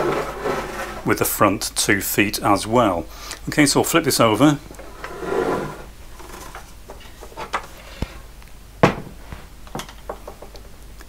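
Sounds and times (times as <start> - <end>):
plastic knocks and clunks: 8.8 - 10.5.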